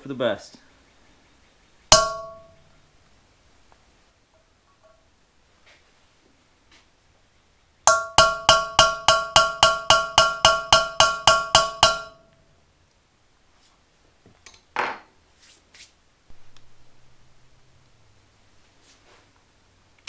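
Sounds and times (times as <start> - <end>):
hammer tapping metal punch: 1.9 - 2.6, 7.9 - 12.3.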